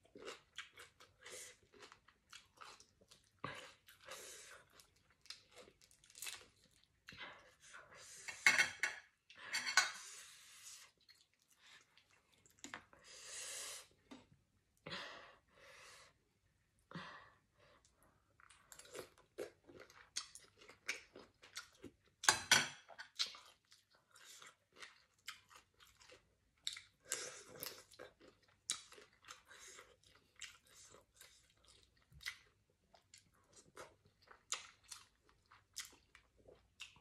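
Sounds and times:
person chewing food: 0:00.0 - 0:07.6, 0:10.8 - 0:13.0, 0:17.8 - 0:37.0.

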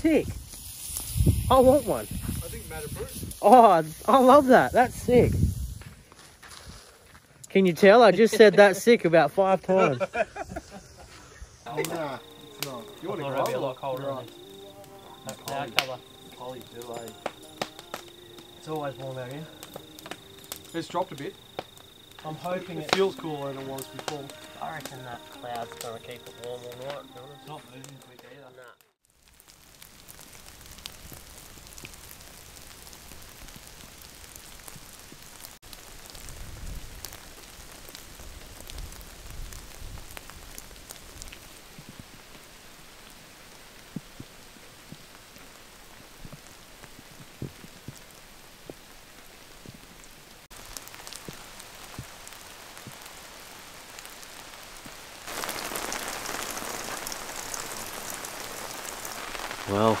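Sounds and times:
drizzle hissing: 0:00.1 - 0:07.0, 0:09.6 - 0:28.8, 0:55.2 - 1:00.0
raindrops ticking close by: 0:11.7 - 1:00.0.

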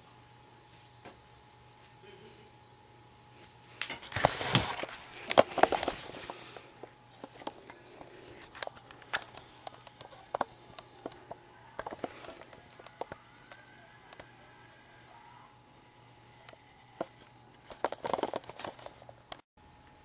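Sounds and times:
camera handling noise: 0:08.4 - 0:13.2.

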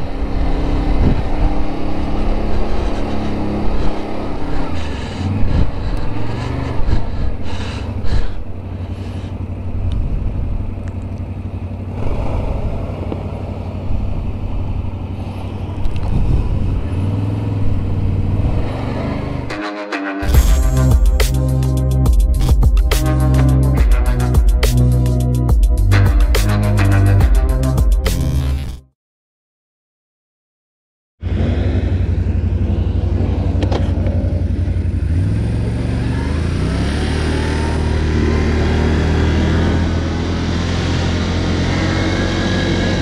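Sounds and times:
atv engine running: 0:00.0 - 0:19.5, 0:31.2 - 0:43.0.

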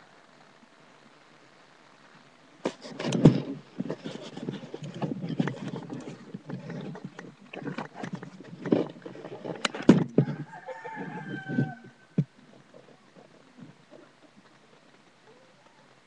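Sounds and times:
faint hiss: 0:00.0 - 0:16.0.

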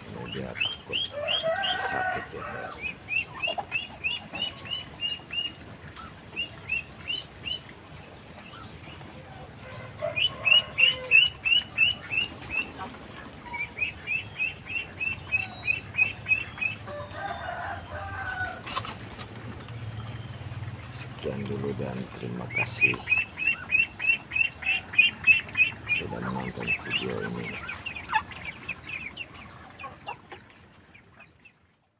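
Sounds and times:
poultry calling: 0:00.0 - 0:07.7, 0:08.4 - 0:31.6.

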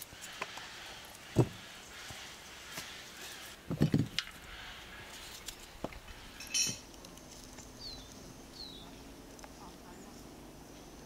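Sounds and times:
ringing metallic clink: 0:06.4 - 0:06.8
bird chirping: 0:07.6 - 0:11.0.

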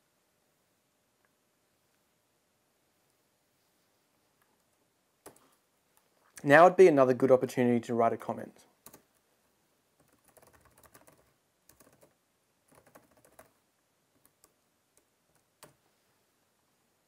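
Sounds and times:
faint keyboard typing: 0:04.4 - 0:06.4, 0:08.8 - 0:09.3, 0:10.0 - 0:15.9.

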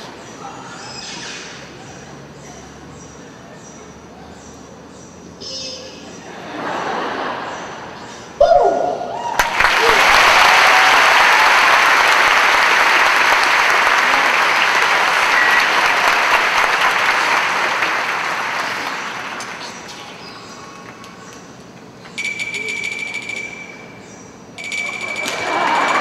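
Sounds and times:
audience applauding: 0:09.3 - 0:21.2, 0:25.2 - 0:26.0.

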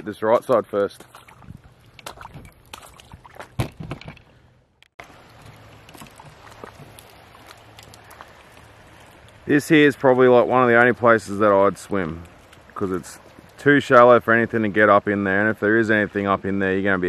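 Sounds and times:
shallow water washing: 0:00.0 - 0:04.0, 0:05.0 - 0:17.0
footsteps splashing on wet rocks: 0:00.0 - 0:04.1, 0:05.0 - 0:09.4.

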